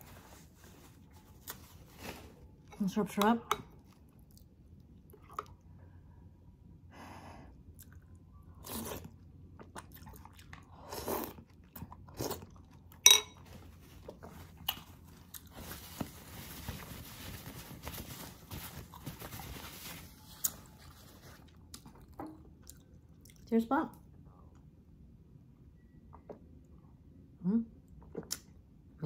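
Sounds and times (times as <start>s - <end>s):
paper towel rustling: 0.0s - 2.5s, 13.5s - 21.5s
chewing and biting: 7.8s - 13.0s, 13.6s - 15.6s.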